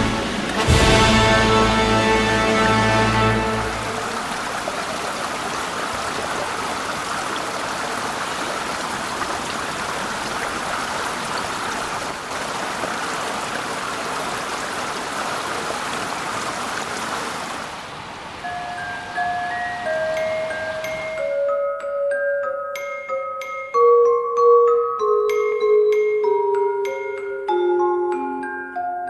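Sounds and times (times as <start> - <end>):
fountain water splashing: 0.0 - 21.4.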